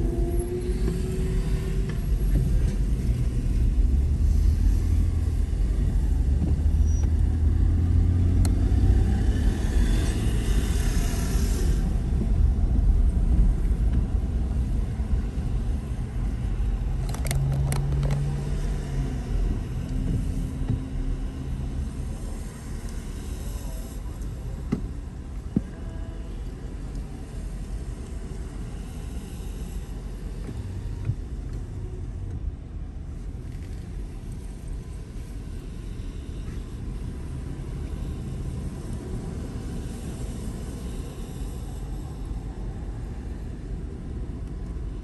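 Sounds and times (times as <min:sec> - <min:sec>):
car engine and tyre rumble: 0:00.0 - 0:45.0
tyre hiss on wet road: 0:08.9 - 0:12.1, 0:28.0 - 0:31.0.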